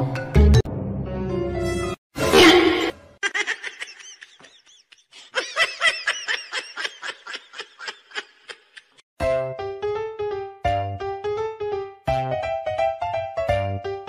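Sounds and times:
person laughing: 0:03.2 - 0:09.0.

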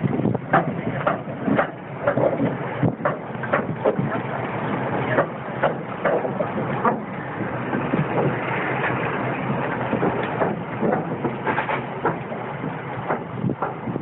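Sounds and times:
steady rushing noise: 0:00.0 - 0:14.0
train wheels clanking and knocking: 0:00.1 - 0:14.0.

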